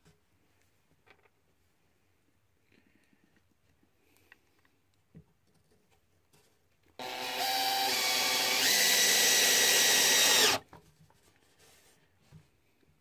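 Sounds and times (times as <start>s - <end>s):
cordless drill driving a screw: 7.0s - 10.6s.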